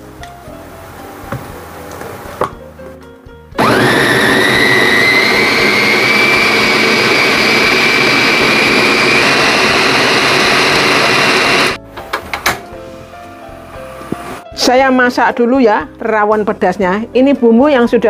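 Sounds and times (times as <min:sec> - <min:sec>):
electric chopper motor whining: 0:03.6 - 0:11.8.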